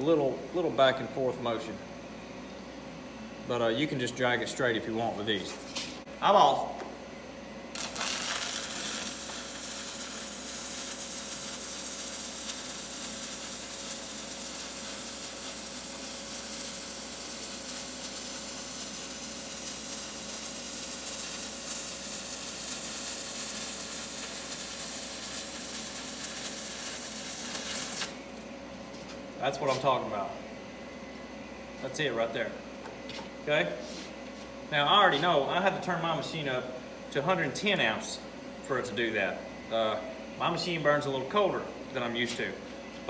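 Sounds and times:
welding arc crackling: 0:07.7 - 0:28.5.

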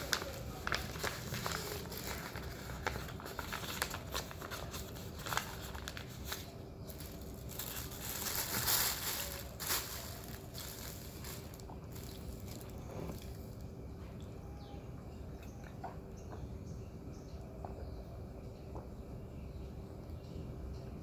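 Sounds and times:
paper wrapping rustling: 0:00.0 - 0:13.6
plastic bag crinkling: 0:00.0 - 0:13.6.

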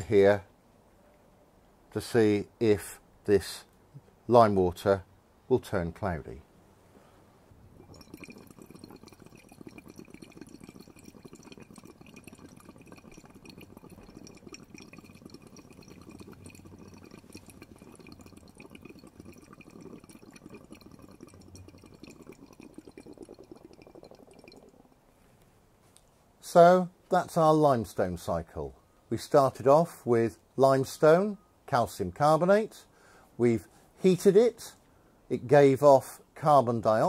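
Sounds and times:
breath bubbling through water: 0:07.7 - 0:25.0.

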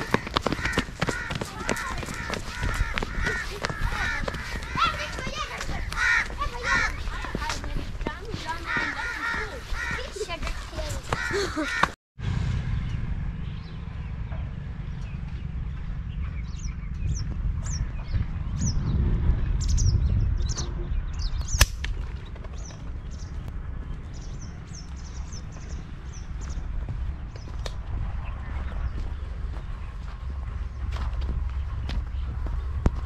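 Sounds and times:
wind rumbling on microphone: 0:00.0 - 0:11.6, 0:12.2 - 0:33.0
small birds chirping: 0:19.6 - 0:33.0
sharp crack: 0:21.5 - 0:22.1.

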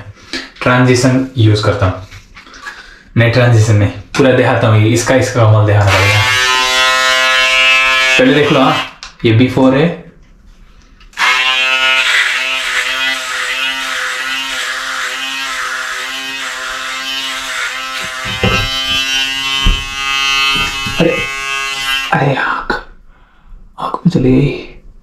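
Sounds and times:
electric shaver buzzing: 0:05.9 - 0:09.0, 0:11.2 - 0:22.2
low knocks: 0:18.0 - 0:21.4.

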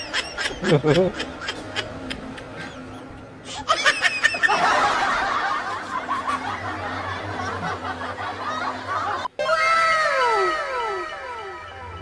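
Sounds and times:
group of people laughing: 0:00.0 - 0:09.3.

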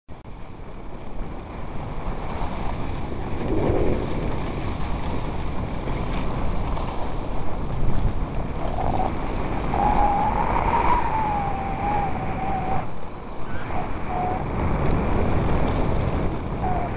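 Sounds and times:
wind rushing over microphone: 0:00.3 - 0:16.9
wavering whistle-like tone: 0:08.6 - 0:14.9, 0:16.5 - 0:16.9.

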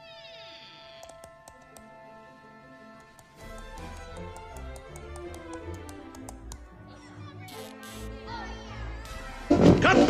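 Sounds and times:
cartoon march music: 0:01.2 - 0:07.0, 0:09.3 - 0:10.0.

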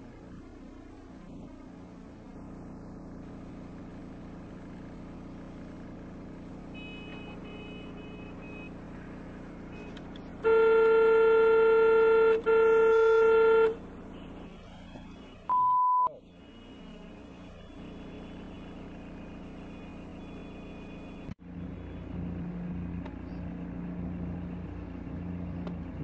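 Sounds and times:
engine idling: 0:00.0 - 0:15.5
traffic hum: 0:00.0 - 0:26.0
car horn blasts: 0:06.7 - 0:08.8, 0:09.7 - 0:17.0.

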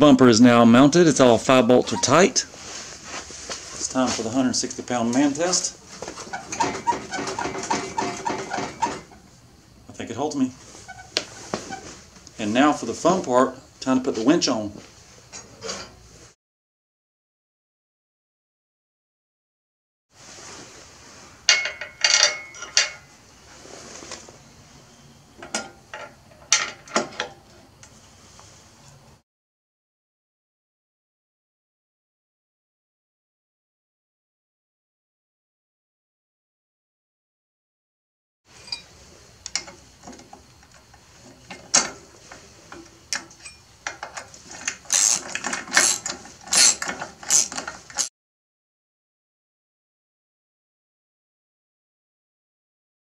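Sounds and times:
metal clinks and knocks: 0:21.5 - 0:23.2, 0:42.7 - 0:48.0
ratchet wrench clicking: 0:44.7 - 0:48.1.

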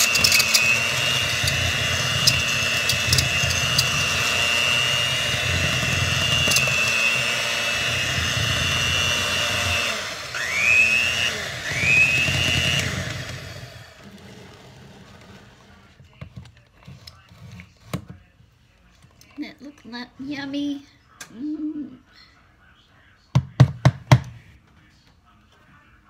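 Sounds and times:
electric hand mixer whining: 0:00.0 - 0:15.6.

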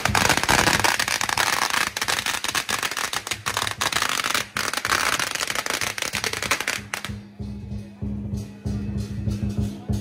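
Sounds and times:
firecrackers popping: 0:00.0 - 0:07.2.

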